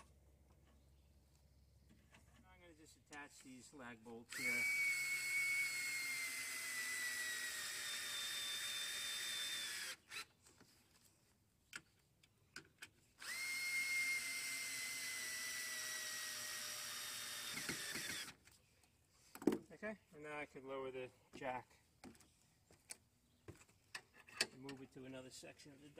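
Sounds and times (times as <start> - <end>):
cordless drill driving bolts: 4.3 - 10.3, 13.2 - 18.4.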